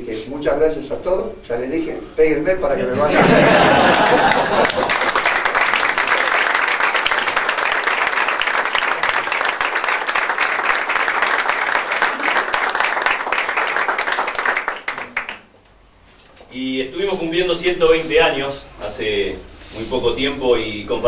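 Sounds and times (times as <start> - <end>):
crowd applauding: 3.2 - 15.5.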